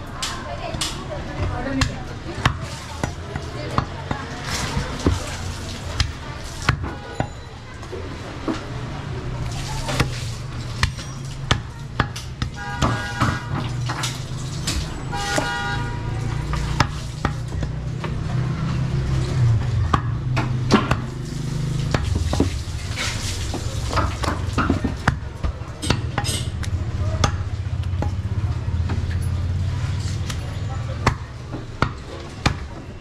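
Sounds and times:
cleaver chopping meat on wood: 0:00.7 - 0:05.4, 0:06.0 - 0:07.0, 0:19.8 - 0:21.2, 0:23.5 - 0:28.2, 0:31.0 - 0:32.8
vehicle horn honking: 0:12.6 - 0:13.6, 0:15.0 - 0:16.5.

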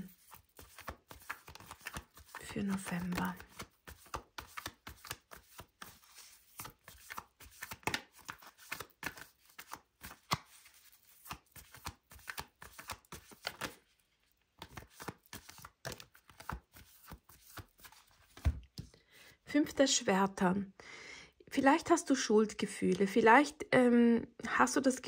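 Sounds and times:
cards being shuffled: 0:00.0 - 0:18.9.

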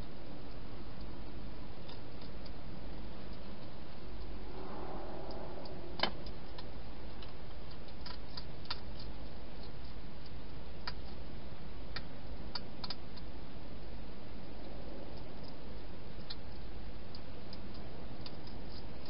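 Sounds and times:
steady hiss: 0:00.0 - 0:19.0
hedgehog eating clicks and crunches: 0:01.8 - 0:03.8, 0:07.2 - 0:13.4, 0:16.2 - 0:19.0.

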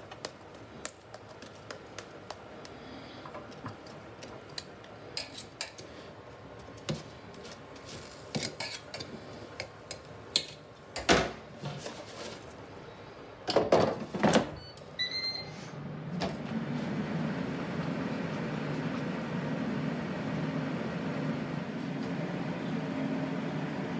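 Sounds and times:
fan low hum: 0:00.0 - 0:23.9
short beeps from control panel: 0:14.6 - 0:15.6.

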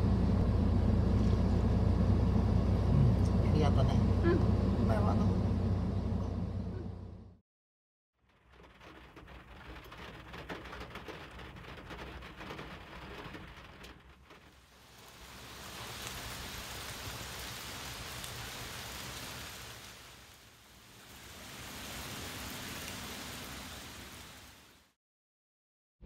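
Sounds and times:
low rumble: 0:00.0 - 0:07.4
rain pattering: 0:08.2 - 0:25.0
heavy rain rushing: 0:08.3 - 0:25.0.

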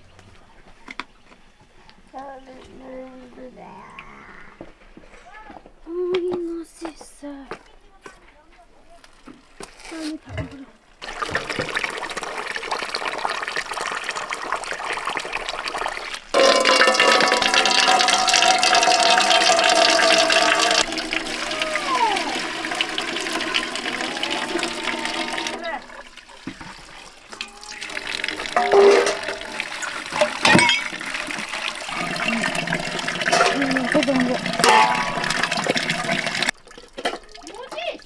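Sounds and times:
water pouring into metal bowl: 0:11.0 - 0:38.0
water splashing: 0:11.0 - 0:38.0
short pitched sounds: 0:16.4 - 0:26.0
ringing metal pot tones: 0:16.4 - 0:26.1, 0:27.4 - 0:36.5.

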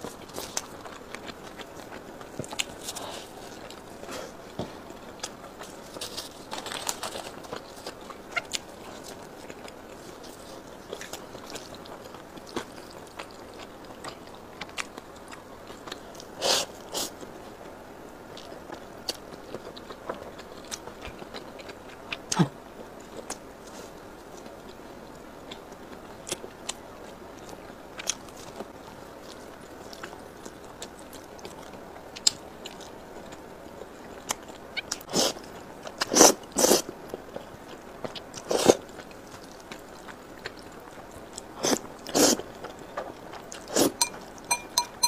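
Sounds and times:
chewing and biting food: 0:00.0 - 0:17.3, 0:18.3 - 0:45.0
noodles being slurped: 0:36.0 - 0:36.8, 0:43.5 - 0:44.0.

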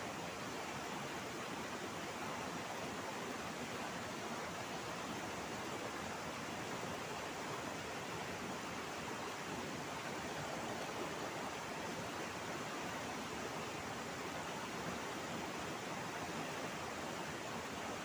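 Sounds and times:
river rushing over rocks: 0:00.0 - 0:18.0.

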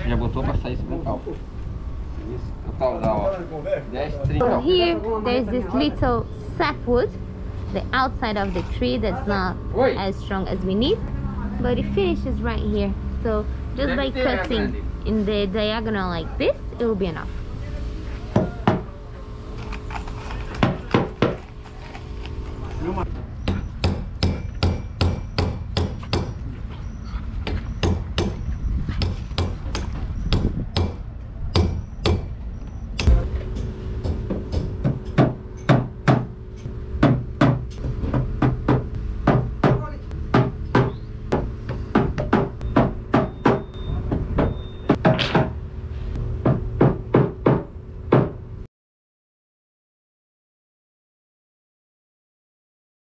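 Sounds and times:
hammer striking wooden plank: 0:23.5 - 0:26.4, 0:34.0 - 0:36.3, 0:37.0 - 0:45.6, 0:46.4 - 0:48.4.

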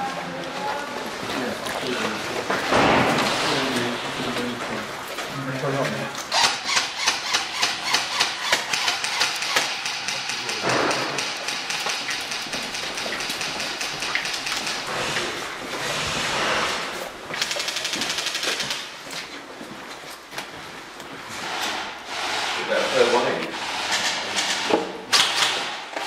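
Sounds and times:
rapid clicks: 0:06.3 - 0:15.2, 0:17.4 - 0:18.9.

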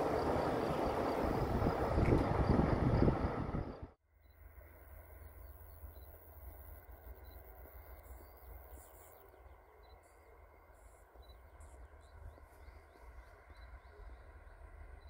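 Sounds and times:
wind rumble on microphone: 0:00.0 - 0:04.0
insects chirping: 0:00.0 - 0:15.0.

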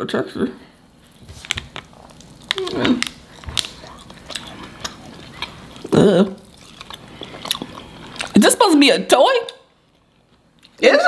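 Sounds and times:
people chewing candy: 0:01.0 - 0:08.5, 0:09.7 - 0:10.8.

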